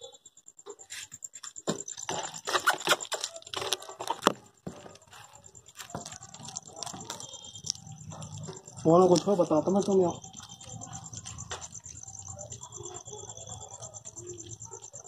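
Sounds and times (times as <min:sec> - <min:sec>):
cat chewing raw meat: 0:05.8 - 0:13.1
teeth clicking: 0:05.8 - 0:15.0.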